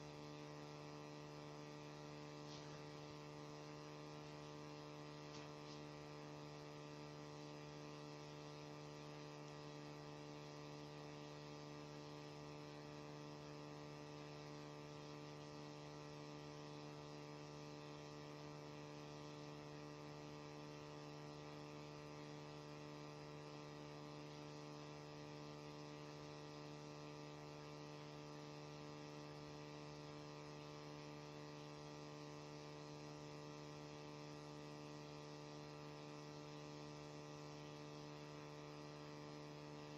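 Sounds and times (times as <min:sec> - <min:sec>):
faint electrical hum: 0:00.0 - 0:39.9.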